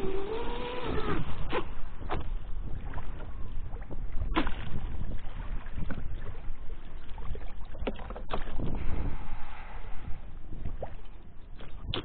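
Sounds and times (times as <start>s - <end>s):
low rumble of wind and water: 0.0s - 12.0s.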